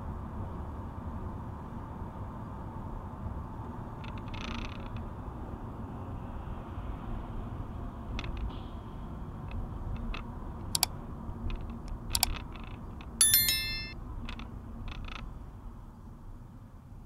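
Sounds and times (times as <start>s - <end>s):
bright bell ding: 13.2s - 14.0s.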